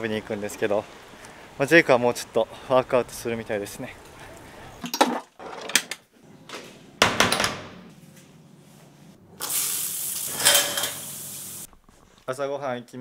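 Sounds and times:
shower spraying water: 0:09.4 - 0:11.7.

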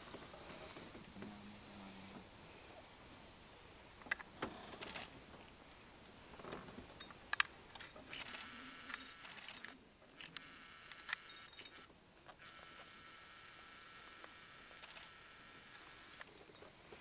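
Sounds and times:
camcorder zoom motor whine: 0:08.1 - 0:16.3.

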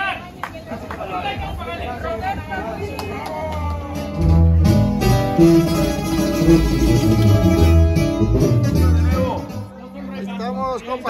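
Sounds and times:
plucked guitars: 0:03.6 - 0:11.0
tuba bass notes: 0:04.2 - 0:10.0.

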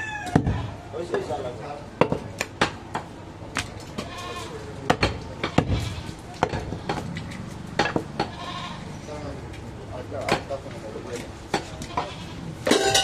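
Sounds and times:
goat bleating: 0:00.0 - 0:00.8, 0:04.0 - 0:04.7, 0:05.5 - 0:06.2, 0:08.2 - 0:09.0, 0:11.7 - 0:12.6.

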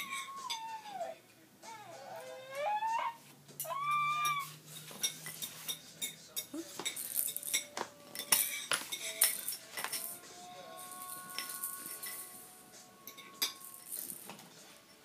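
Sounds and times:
baby squealing: 0:00.0 - 0:04.6
light irregular clicks and clinks: 0:04.7 - 0:15.0.

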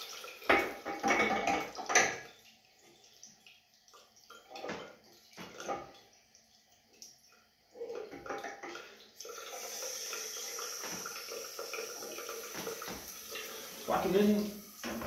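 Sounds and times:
water running from bath taps: 0:00.0 - 0:15.0.

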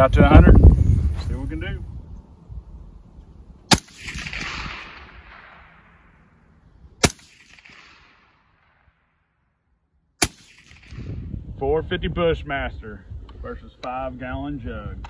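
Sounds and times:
gunshot echo: 0:03.7 - 0:06.4, 0:07.0 - 0:09.2, 0:10.2 - 0:11.3
suppressed rifle shots: 0:03.7 - 0:09.2, 0:10.2 - 0:11.2.

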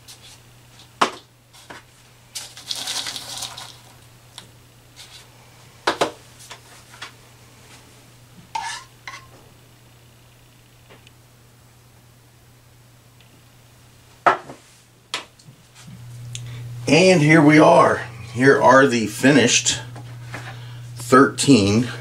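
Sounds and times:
spoon scraping rustle: 0:02.4 - 0:04.0, 0:08.6 - 0:09.3.

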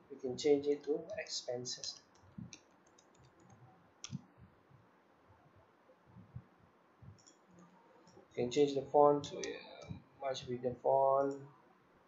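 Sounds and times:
keyboard and mouse clicks: 0:01.8 - 0:04.3, 0:07.1 - 0:07.7.

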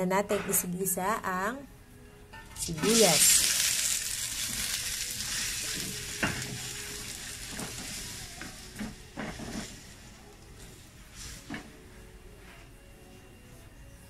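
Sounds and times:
onions sizzling in a wok: 0:02.4 - 0:11.7
spatula scraping and knocking pan: 0:07.4 - 0:09.9.

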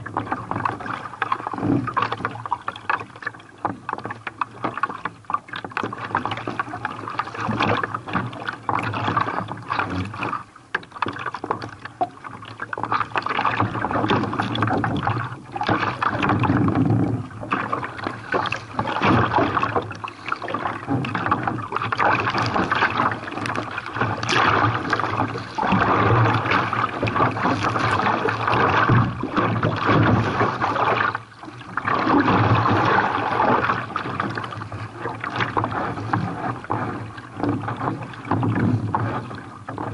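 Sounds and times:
seawater splashing around kayak: 0:00.0 - 0:39.9.

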